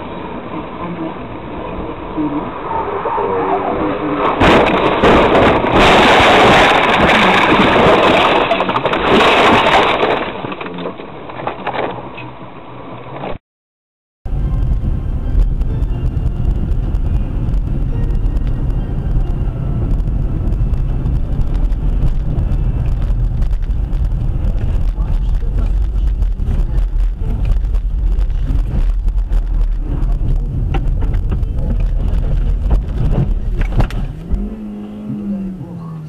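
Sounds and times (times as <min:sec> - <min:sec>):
car engine and tyres rumbling: 0:00.0 - 0:13.4, 0:14.3 - 0:36.0
car knocks and jolt: 0:04.2 - 0:13.4, 0:16.1 - 0:34.6.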